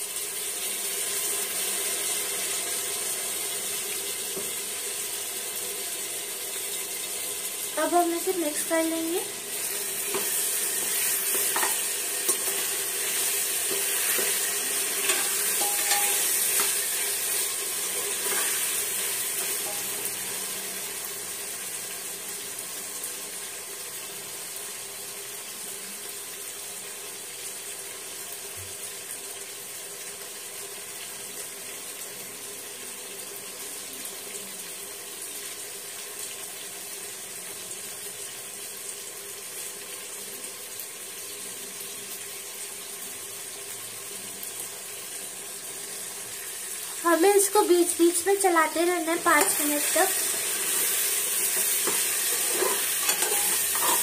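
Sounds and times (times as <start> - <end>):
food sizzling in hot oil: 0.0 - 54.0
metal spatula scraping pot: 13.2 - 18.8, 49.4 - 54.0.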